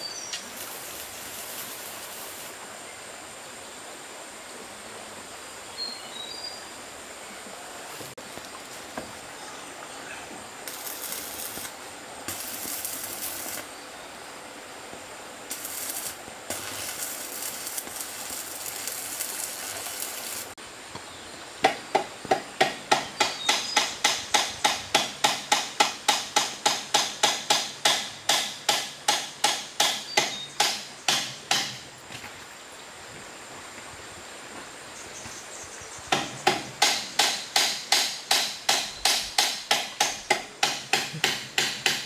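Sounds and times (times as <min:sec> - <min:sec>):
hissing noise: 0:00.0 - 0:03.2, 0:07.5 - 0:20.6
hand tool striking: 0:22.0 - 0:31.8, 0:36.1 - 0:42.0.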